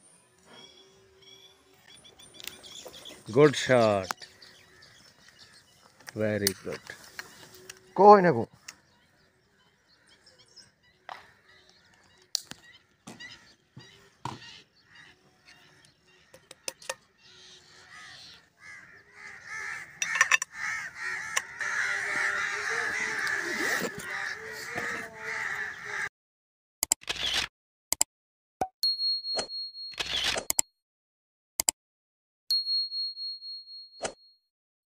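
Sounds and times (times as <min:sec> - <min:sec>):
birds calling: 0:00.4 - 0:26.1.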